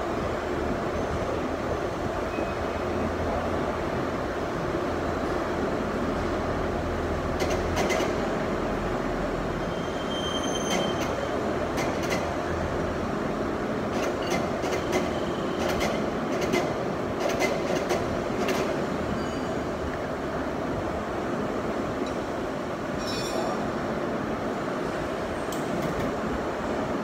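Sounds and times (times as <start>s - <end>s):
high squeal: 9.6s - 11.0s.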